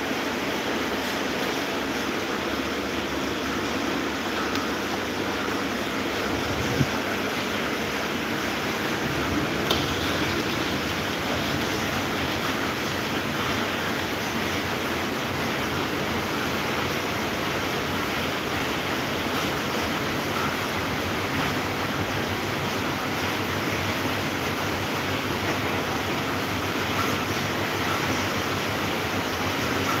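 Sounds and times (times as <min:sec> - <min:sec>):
electric fan running: 0:00.0 - 0:30.0.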